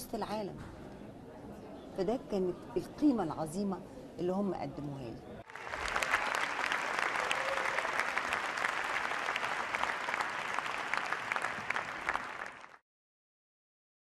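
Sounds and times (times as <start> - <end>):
audience applauding: 5.4 - 12.8.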